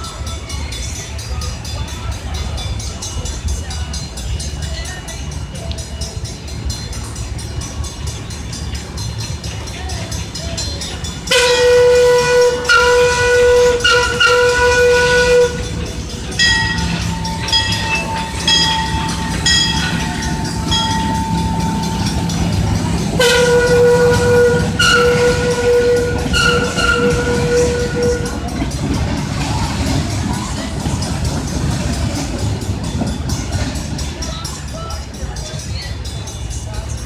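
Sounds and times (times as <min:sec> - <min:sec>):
train rumbling by: 0:00.0 - 0:37.0
steam locomotive whistle: 0:11.1 - 0:28.9.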